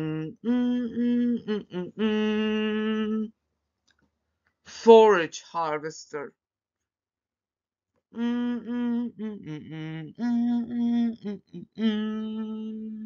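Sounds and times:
person singing wordless notes: 8.2s - 13.0s.

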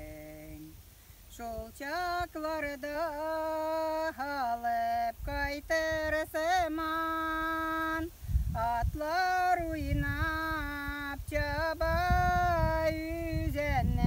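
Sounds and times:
woman singing unaccompanied: 0.0s - 14.0s
wind rumble on microphone: 4.6s - 14.0s.

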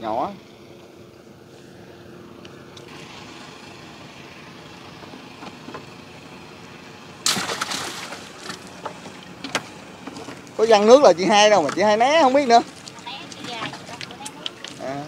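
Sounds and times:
boat engine humming: 0.0s - 15.0s
fish splashing water: 7.2s - 9.0s.

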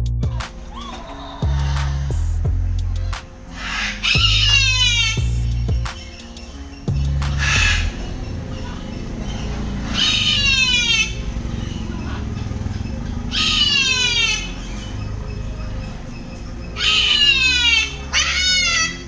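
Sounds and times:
parrot calling harshly: 0.7s - 2.2s, 3.5s - 5.6s, 6.2s - 15.0s, 16.7s - 19.0s.

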